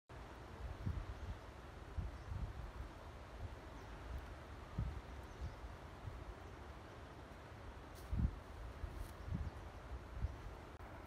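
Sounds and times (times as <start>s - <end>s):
faint outdoor hiss: 0.1s - 11.0s
wind buffeting microphone: 0.6s - 6.4s, 8.0s - 10.9s.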